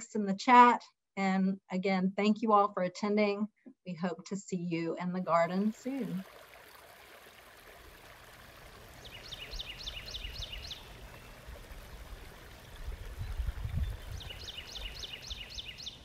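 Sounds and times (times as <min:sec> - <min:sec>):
songbird whistling: 0:09.0 - 0:10.9, 0:14.1 - 0:16.0.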